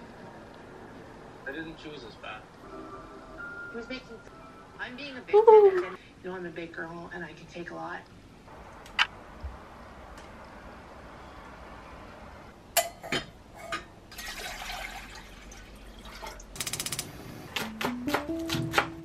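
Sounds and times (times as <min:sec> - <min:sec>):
water pouring into saucepan: 0:14.1 - 0:16.5
gas igniter rapid ticking: 0:16.6 - 0:17.1.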